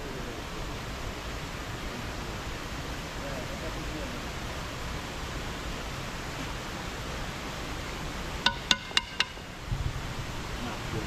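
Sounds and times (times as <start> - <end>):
background hiss: 0.0 - 11.0.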